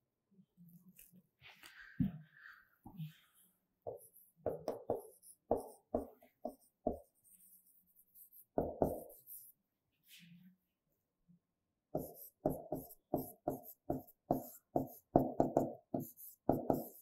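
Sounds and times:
writing knocks on a board: 0:03.9 - 0:07.1, 0:08.5 - 0:09.3, 0:12.0 - 0:17.0.

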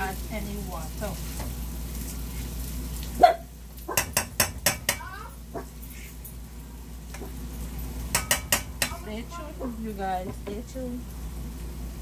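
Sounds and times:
utensil knocking against pan: 0:03.9 - 0:05.1, 0:08.1 - 0:09.1.

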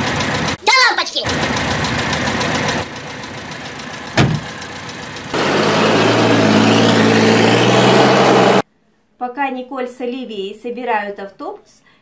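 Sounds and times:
engine idling: 0:00.0 - 0:00.6, 0:01.3 - 0:07.3
engine knock: 0:00.0 - 0:00.6, 0:01.3 - 0:05.4.

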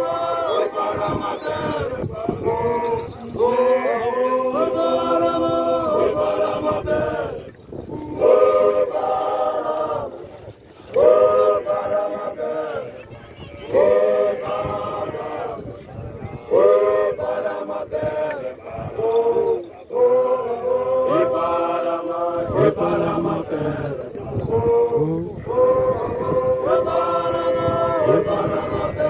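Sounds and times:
young men chanting in unison: 0:00.0 - 0:29.0.

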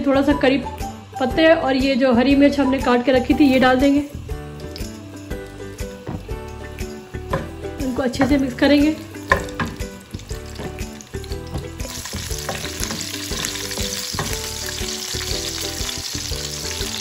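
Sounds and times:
leaves sizzling in hot oil: 0:02.8 - 0:17.0
spatula scraping and tapping pan: 0:09.2 - 0:15.0.

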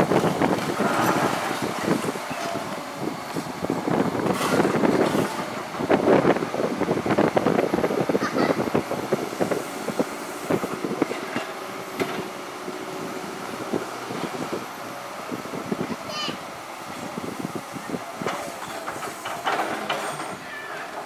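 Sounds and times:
excavator engines running: 0:00.0 - 0:21.0.

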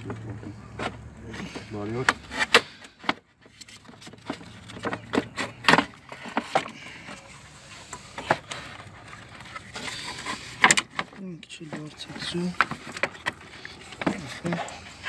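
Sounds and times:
hands handling plastic parts: 0:00.0 - 0:15.0.

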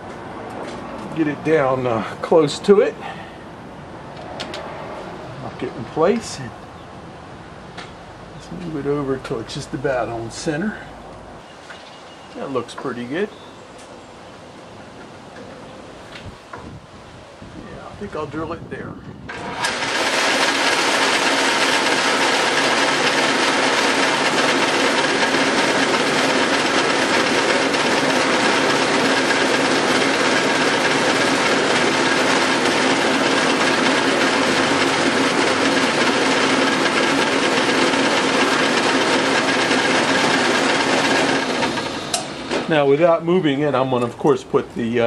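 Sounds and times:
drill press motor whining: 0:19.3 - 0:42.8.

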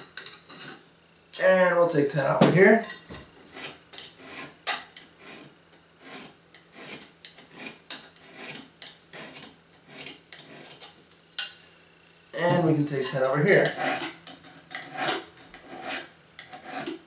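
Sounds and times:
hand file rasping: 0:03.5 - 0:04.6, 0:05.2 - 0:10.8, 0:13.5 - 0:17.0.

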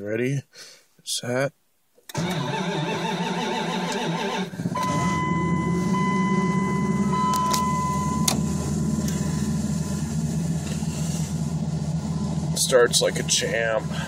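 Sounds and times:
steady high tone: 0:04.8 - 0:10.3.

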